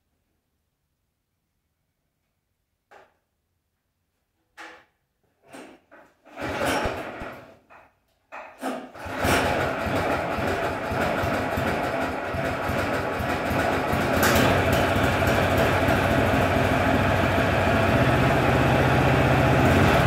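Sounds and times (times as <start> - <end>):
small gasoline engine starting: 6.2 - 7.6, 8.6 - 20.0.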